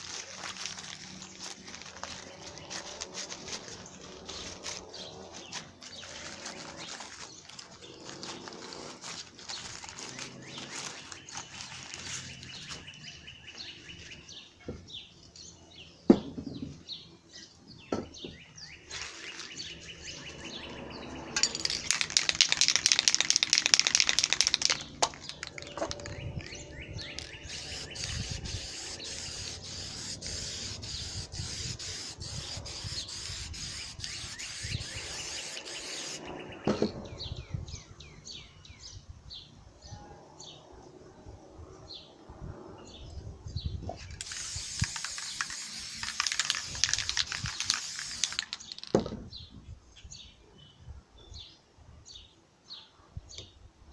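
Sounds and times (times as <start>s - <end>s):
small birds chirping: 0.0s - 40.8s, 42.8s - 53.6s
aerosol spray can hissing: 27.2s - 36.2s, 44.2s - 48.7s.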